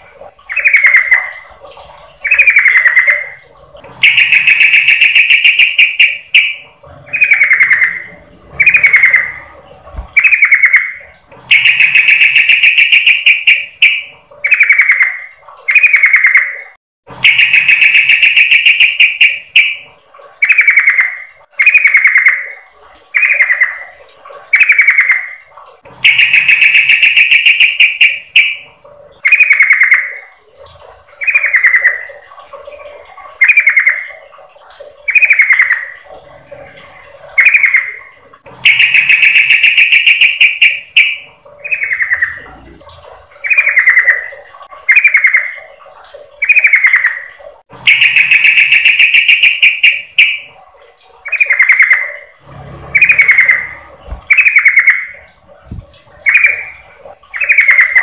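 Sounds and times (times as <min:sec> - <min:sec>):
bird calling: 0:02.2 - 0:19.8, 0:38.6 - 0:42.8, 0:52.9 - 0:55.3, 0:56.2 - 0:58.0.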